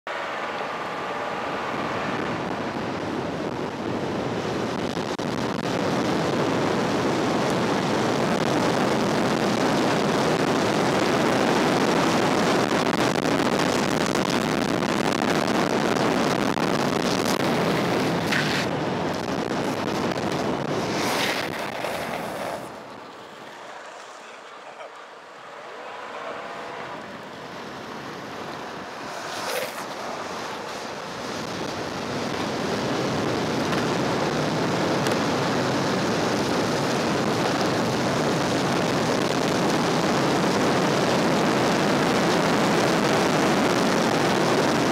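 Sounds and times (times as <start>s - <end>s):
wheels rolling over pavement: 0.1s - 44.9s
wind rushing on microphone: 0.2s - 23.1s, 26.3s - 44.9s
hissing scrapes: 20.8s - 22.8s.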